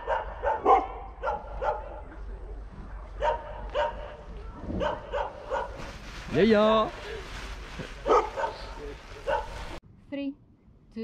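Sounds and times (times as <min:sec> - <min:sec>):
dog barking: 0:00.0 - 0:02.0, 0:03.2 - 0:05.8, 0:08.0 - 0:09.6.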